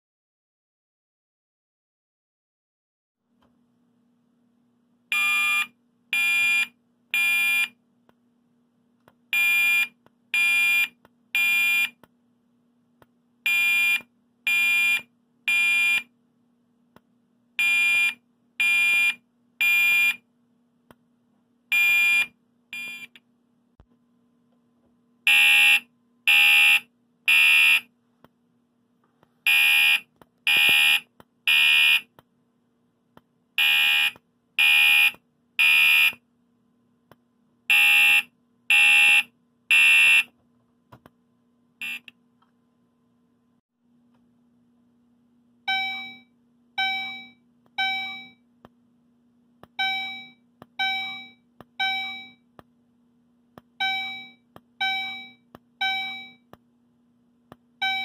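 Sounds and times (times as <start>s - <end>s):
fire alarm horn beeping: 25.3s - 27.9s, 29.5s - 32.1s, 33.6s - 36.2s, 37.7s - 40.3s, 41.8s - 42.1s.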